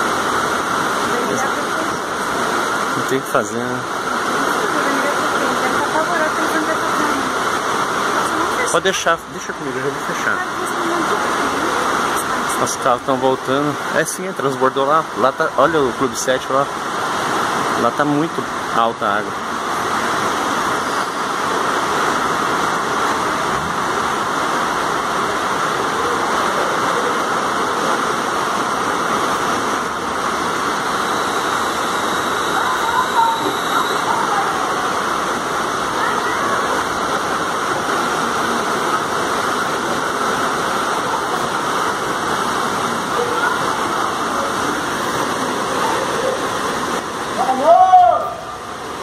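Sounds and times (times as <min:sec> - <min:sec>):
floodwater rushing: 0:00.0 - 0:49.0
torrential rain: 0:00.0 - 0:49.0
faint high tone: 0:31.0 - 0:34.9.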